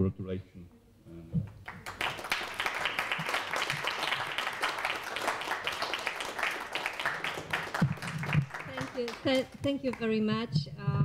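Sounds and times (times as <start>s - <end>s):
hands clapping applause: 1.5s - 10.2s.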